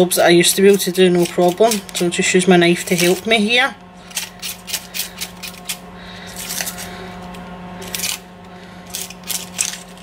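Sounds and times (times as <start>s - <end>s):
onion skin crackling and tearing: 7.8s - 10.0s.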